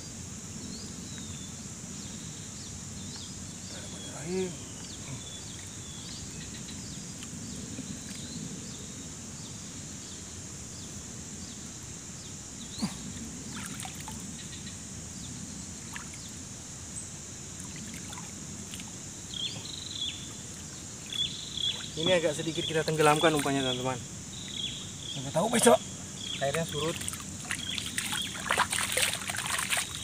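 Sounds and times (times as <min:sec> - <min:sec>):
high insect drone: 0:00.0 - 0:30.0
shallow water sloshing and dripping: 0:13.5 - 0:14.2, 0:17.6 - 0:19.0, 0:22.9 - 0:23.8, 0:26.6 - 0:30.0.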